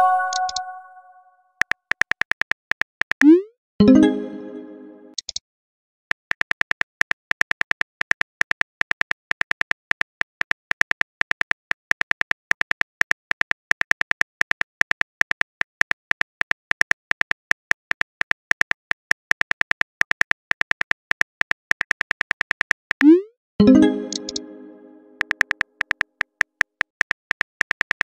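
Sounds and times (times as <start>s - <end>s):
ringing chime: 0.0s - 1.2s
phone keyboard key clicks: 25.2s - 28.0s.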